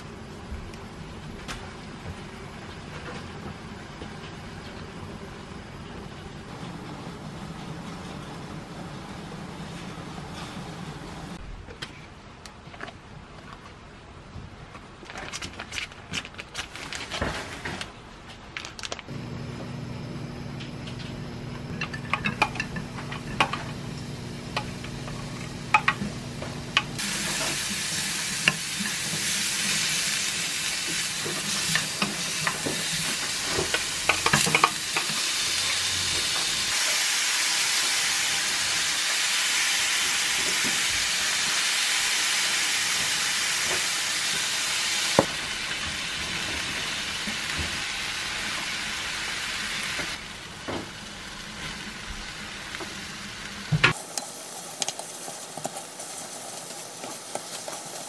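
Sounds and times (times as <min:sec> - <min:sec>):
onion and garlic sizzling in pan: 0:19.1 - 0:58.0.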